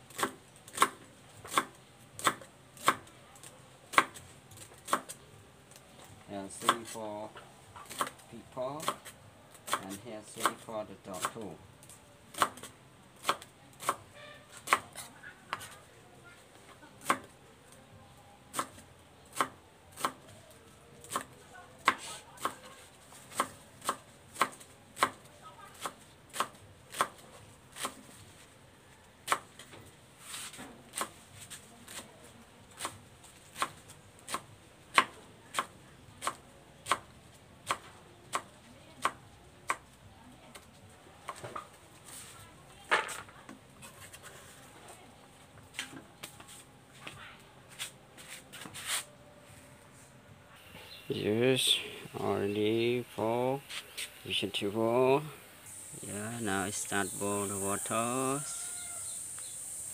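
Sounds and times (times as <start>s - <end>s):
knife chopping on wooden board: 0.1s - 3.1s, 23.3s - 25.2s.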